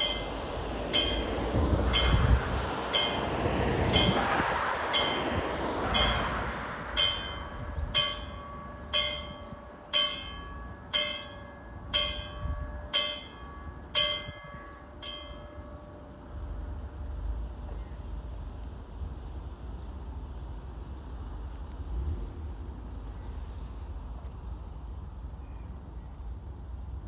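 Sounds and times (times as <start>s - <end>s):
level crossing warning bell: 0.0s - 16.7s
rushing noise: 0.0s - 17.1s
low rumble: 0.0s - 20.4s.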